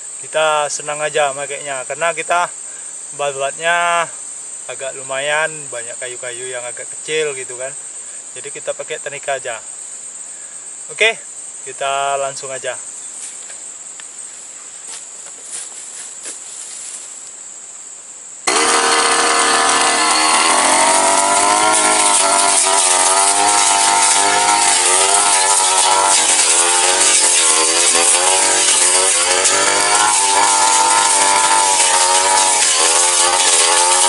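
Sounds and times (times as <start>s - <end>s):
crickets chirring: 0.0s - 18.5s, 19.7s - 34.0s
brush cutter engine revving: 18.5s - 34.0s.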